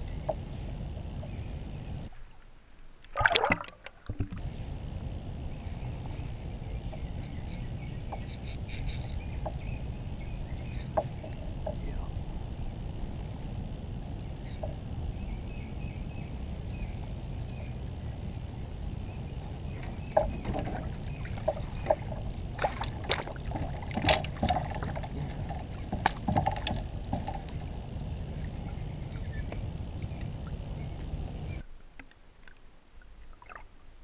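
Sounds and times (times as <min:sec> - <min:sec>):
low rumble of water: 0:00.0 - 0:34.0
fish splashing at water surface: 0:03.1 - 0:04.4
knocks on kayak: 0:19.8 - 0:23.2.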